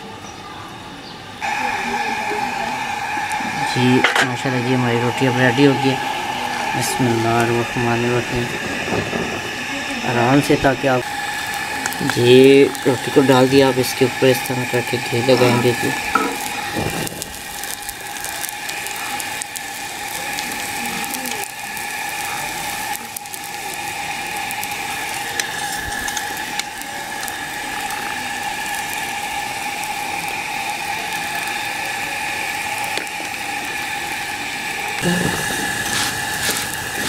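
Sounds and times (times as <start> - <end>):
steady high hum: 1.2 - 37.0
flatbread sizzling in ghee: 1.4 - 37.0.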